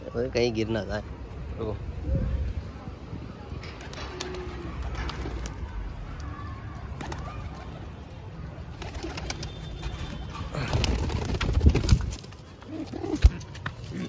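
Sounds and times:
pigeons cooing: 12.6s - 14.0s.

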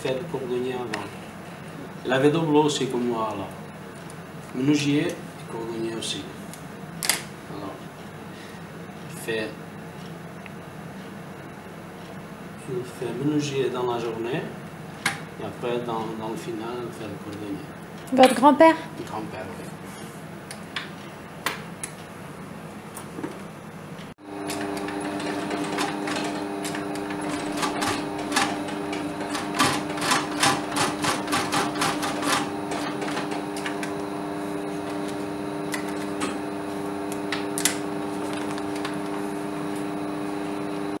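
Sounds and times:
sewing machine motor hum: 24.2s - 41.0s.

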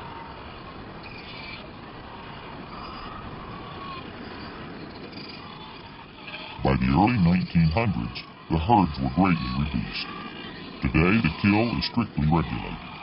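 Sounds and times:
faint drawn-out call: 0.0s - 13.0s
seal beach ambience: 0.0s - 13.0s.

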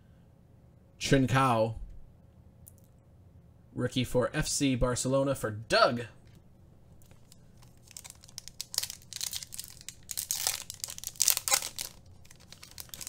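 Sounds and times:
wrapper tearing and crinkling: 7.0s - 13.0s.

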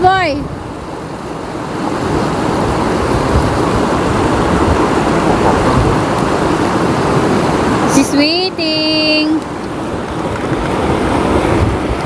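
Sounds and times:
shallow river flowing over stones: 0.6s - 8.8s.

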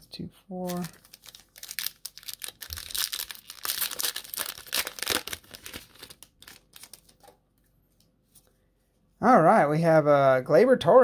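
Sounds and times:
card pack wrapper crinkling: 0.6s - 7.3s.

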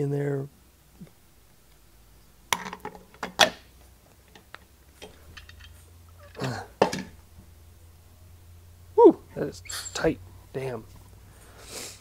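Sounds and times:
metal parts clinking: 5.0s - 7.2s, 9.7s - 10.1s.

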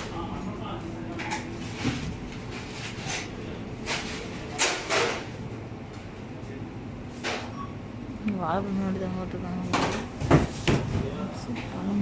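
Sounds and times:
grocery shop background noise: 0.0s - 12.0s.

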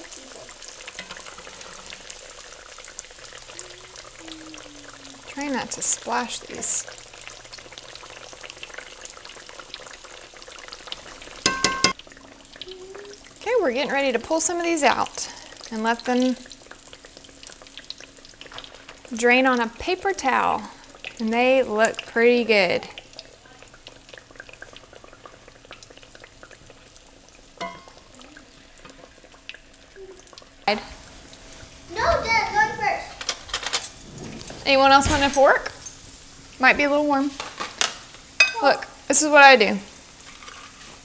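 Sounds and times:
tomato slices sizzling in hot oil: 0.0s - 41.0s
metal utensil clinking: 1.0s - 2.0s, 11.4s - 12.0s, 27.6s - 28.0s, 38.4s - 38.7s.

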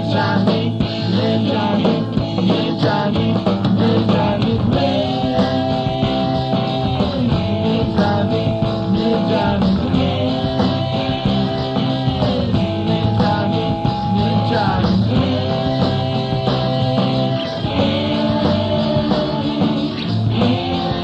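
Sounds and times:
rock band playing live: 0.0s - 21.0s.

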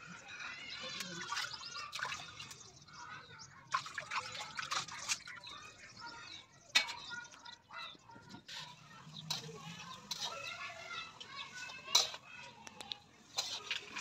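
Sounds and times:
pot of food cooking: 0.0s - 14.0s
steel cookware clinking: 6.7s - 7.2s, 8.5s - 14.0s.

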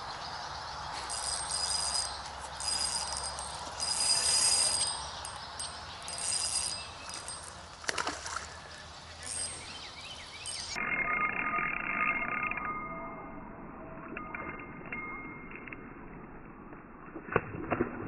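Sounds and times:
fishing reel whirring: 1.0s - 8.4s, 9.2s - 9.7s, 10.4s - 13.3s
reel clicks: 1.0s - 8.5s, 9.2s - 9.7s, 10.5s - 10.8s.

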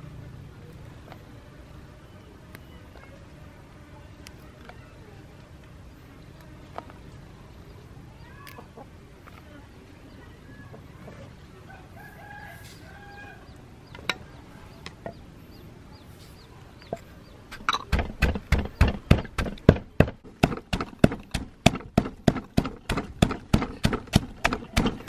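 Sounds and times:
pestle pounding in mortar: 17.6s - 25.0s.

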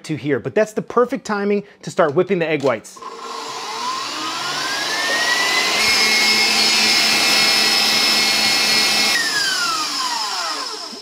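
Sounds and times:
stand mixer motor whining: 3.0s - 11.0s.

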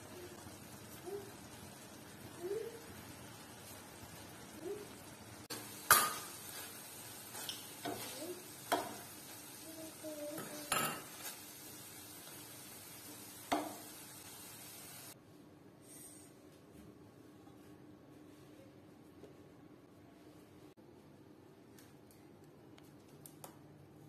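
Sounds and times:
chicken sizzling in a pan: 0.0s - 15.2s
wooden spatula knocking on pan: 13.5s - 13.8s.

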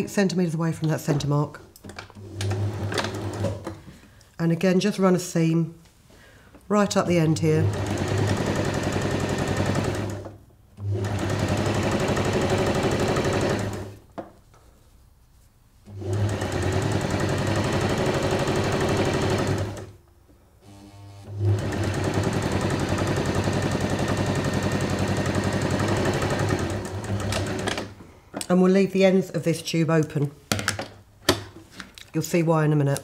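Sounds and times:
sewing machine stitching: 2.2s - 3.7s, 7.4s - 14.0s, 15.9s - 19.9s, 20.6s - 27.9s.

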